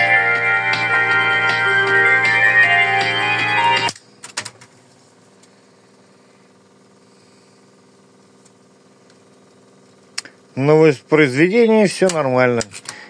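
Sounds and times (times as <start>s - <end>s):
organ music from tape: 0.0s - 4.0s
tape recorder hum: 0.0s - 7.0s.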